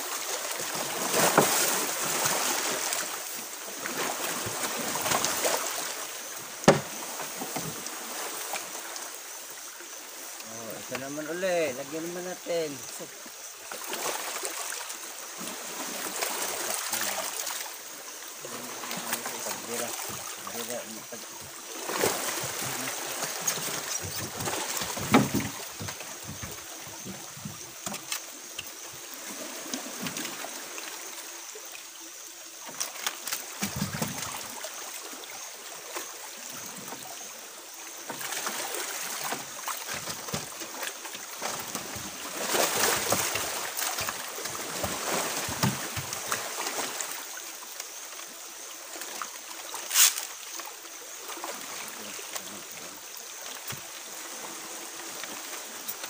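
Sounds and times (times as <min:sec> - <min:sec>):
water sloshing against boat hull: 0:00.0 - 0:31.8, 0:32.4 - 0:56.0
splashes: 0:00.0 - 0:56.0
knocks on wooden boat: 0:06.6 - 0:07.8, 0:23.9 - 0:28.0, 0:44.0 - 0:46.3.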